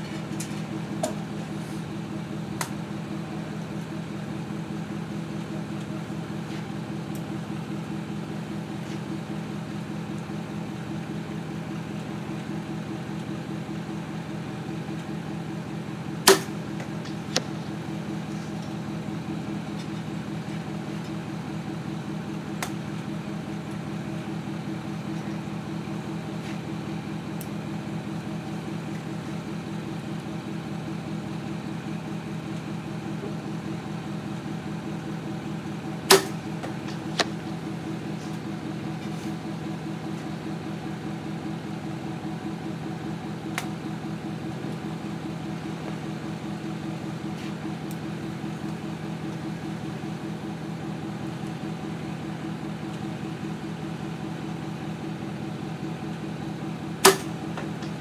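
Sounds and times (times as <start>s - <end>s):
low mechanical hum: 0.0s - 58.0s
arrow striking target: 16.2s - 16.6s, 36.1s - 36.4s, 57.0s - 57.4s
bow string snap: 16.3s - 17.6s, 36.1s - 37.4s, 57.0s - 58.0s.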